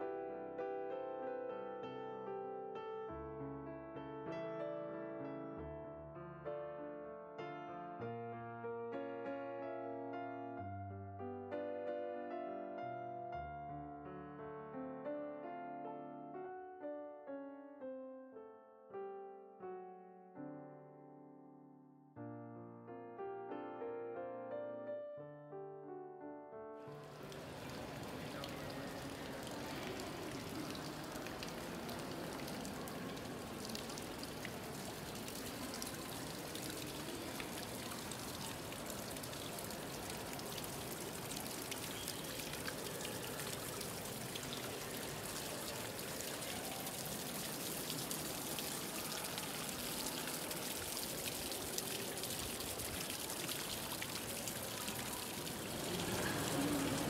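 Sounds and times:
fountain water splashing into pool: 26.9s - 57.0s.

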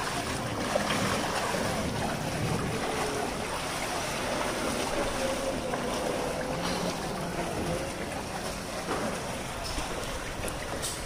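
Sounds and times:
wind buffeting microphone: 0.0s - 5.8s
floodwater sloshing and splashing: 0.0s - 11.0s.

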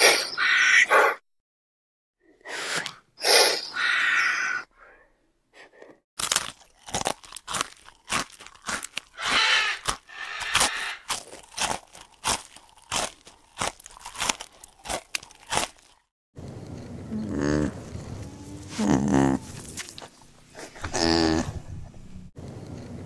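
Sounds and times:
animals crunching food: 6.2s - 16.1s, 17.4s - 22.0s.

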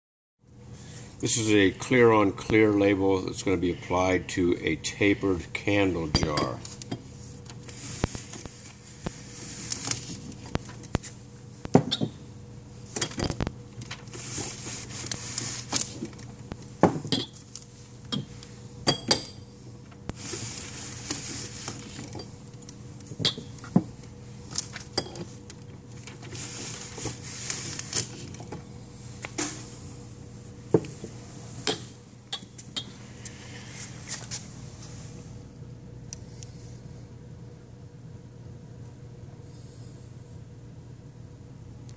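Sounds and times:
faint steady hum: 0.4s - 41.9s
glass jars clinking: 17.0s - 17.4s.

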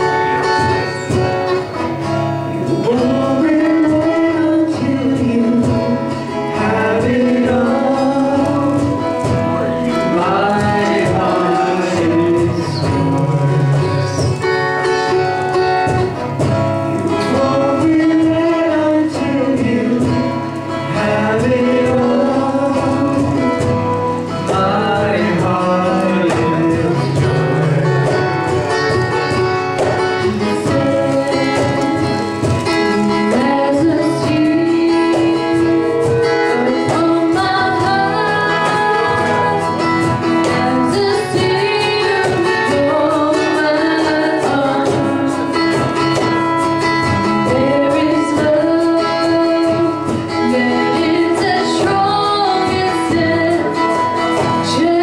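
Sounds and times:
instrumental accompaniment: 0.0s - 55.0s
women singing a worship song: 2.8s - 14.0s, 17.2s - 23.8s, 30.2s - 45.5s, 47.4s - 55.0s.

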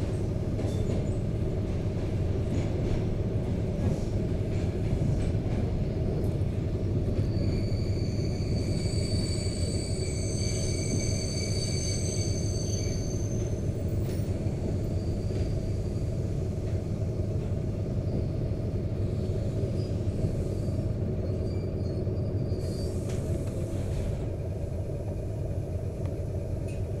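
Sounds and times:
train running on rails: 0.0s - 27.0s
high-pitched squeal from running gear: 7.2s - 13.6s, 20.6s - 23.2s.

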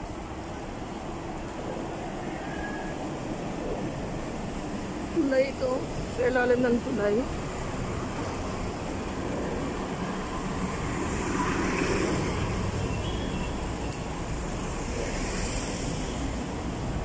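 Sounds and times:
street traffic noise: 0.0s - 17.0s
vehicles driving past: 5.3s - 17.0s.

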